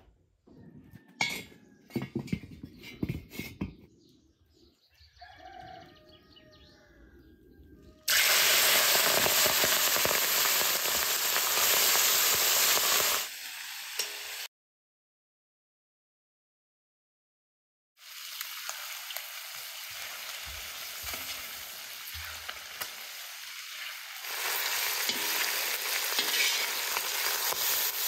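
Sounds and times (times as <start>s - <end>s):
frying in wok: 8.1s - 14.5s, 18.0s - 28.0s
water sizzling in hot wok: 8.1s - 14.5s, 18.0s - 28.0s
brush scrubbing wok: 23.6s - 28.0s.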